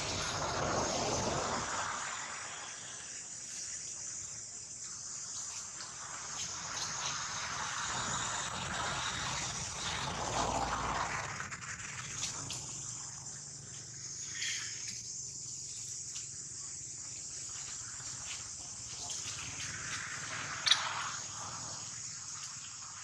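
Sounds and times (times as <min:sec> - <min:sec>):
rushing noise: 0:00.0 - 0:14.8
steady high hiss: 0:00.0 - 0:23.0.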